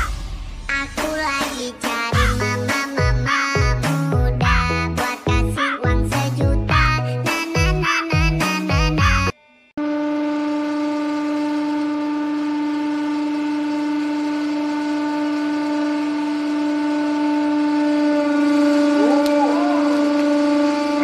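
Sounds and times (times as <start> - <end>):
wavering sound: 9.8 - 21.0.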